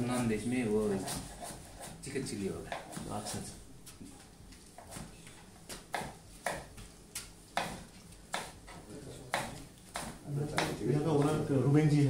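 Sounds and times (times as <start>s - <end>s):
utensil stirring in a pan: 0.0s - 3.6s.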